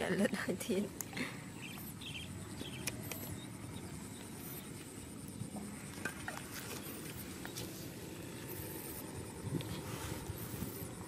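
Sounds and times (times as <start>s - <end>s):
wind and handling rumble: 0.0s - 11.0s
thin high whine: 0.6s - 11.0s
faint high chirps: 1.1s - 5.6s.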